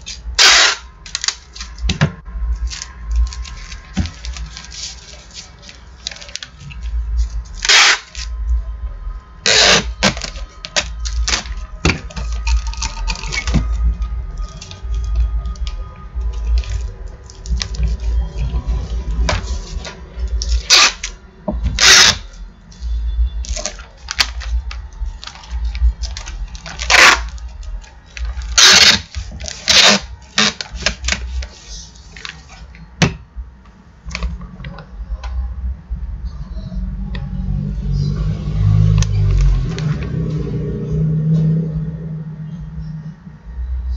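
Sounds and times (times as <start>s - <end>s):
packing tape pulled from dispenser: 0.0s - 1.8s, 7.6s - 8.3s, 9.5s - 11.6s, 19.6s - 21.2s, 21.8s - 22.3s, 25.2s - 27.4s, 28.1s - 31.5s.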